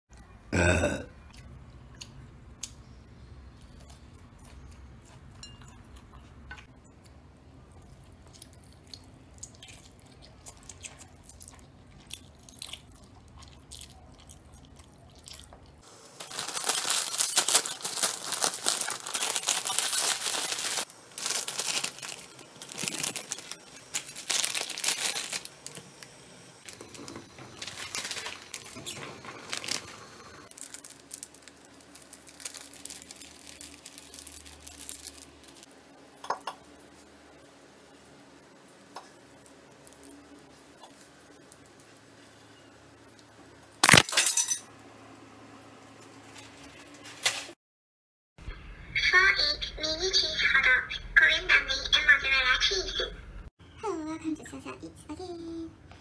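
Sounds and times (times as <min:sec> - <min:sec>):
plastic wrapper crinkling and tearing: 0:16.2 - 0:35.7.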